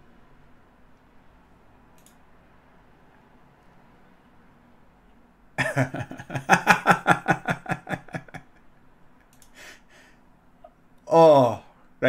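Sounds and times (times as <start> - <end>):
man laughing loudly: 5.6 - 8.6, 11.1 - 11.6.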